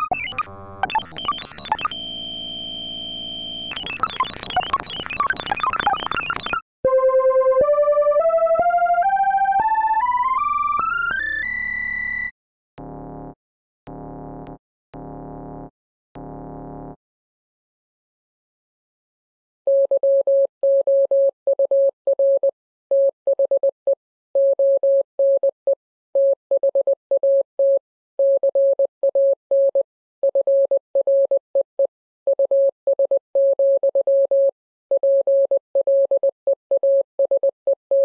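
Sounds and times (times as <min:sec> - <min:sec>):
electronic beeps: 0:00.0 - 0:02.0, 0:03.7 - 0:06.6.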